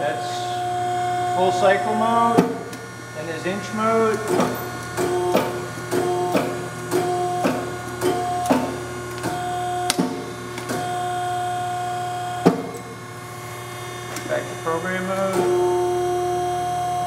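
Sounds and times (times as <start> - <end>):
hydraulic pump humming: 0.0 - 17.0.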